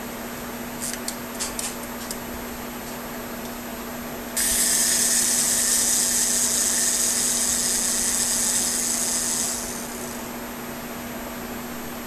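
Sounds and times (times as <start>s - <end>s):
clockwork timer buzzing whir: 4.4s - 10.4s.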